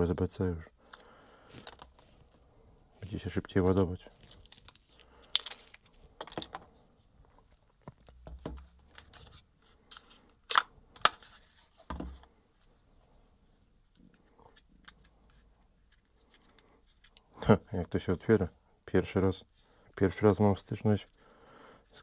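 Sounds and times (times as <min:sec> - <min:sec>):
plastic parts clicking and tapping: 0:00.9 - 0:02.0, 0:04.2 - 0:06.7, 0:07.3 - 0:09.3.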